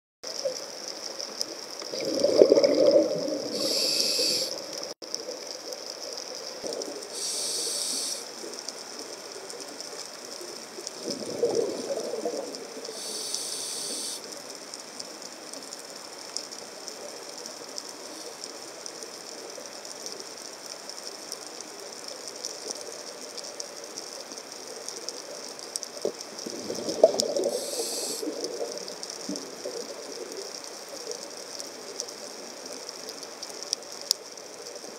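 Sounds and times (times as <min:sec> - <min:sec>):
faint steady crackle: 0:00.2 - 0:34.9
exhaled bubbles rushing: 0:01.8 - 0:04.9, 0:11.0 - 0:12.8, 0:26.4 - 0:29.9
diver inhaling through regulator: 0:02.6 - 0:04.7, 0:07.1 - 0:08.3, 0:12.9 - 0:14.2, 0:27.4 - 0:28.4.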